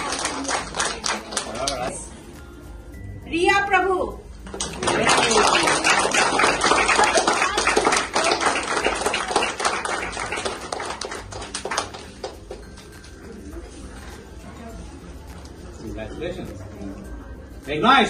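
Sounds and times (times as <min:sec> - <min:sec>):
crowd applauding: 0:00.0 - 0:02.0, 0:04.5 - 0:12.9.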